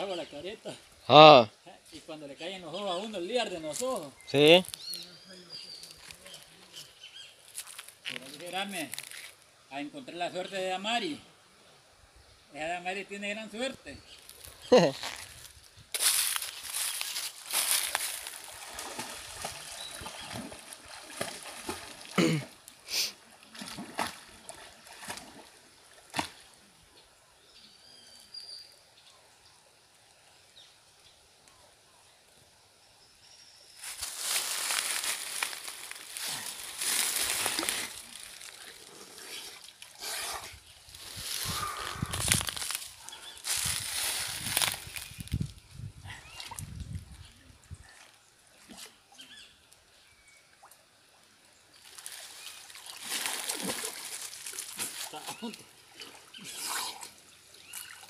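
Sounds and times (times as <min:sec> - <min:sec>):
water splashing: 0:16.8 - 0:26.5, 0:51.8 - 0:58.0.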